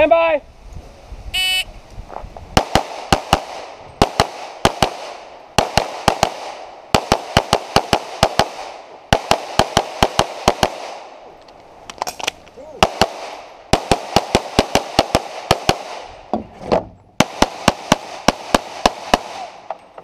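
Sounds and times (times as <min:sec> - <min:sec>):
rapid pistol fire: 0:02.6 - 0:11.1, 0:12.8 - 0:16.1, 0:17.2 - 0:19.6.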